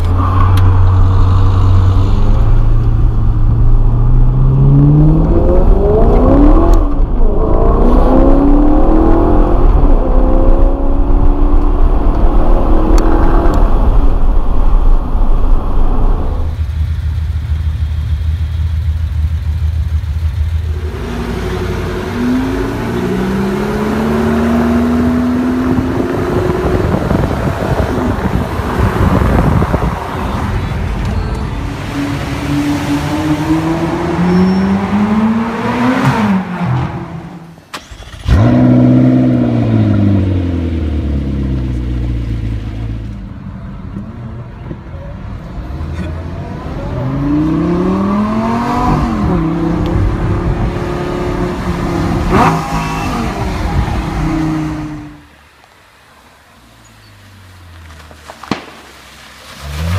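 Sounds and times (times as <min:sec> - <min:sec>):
car engine accelerating from inside: 0:01.2 - 0:14.1.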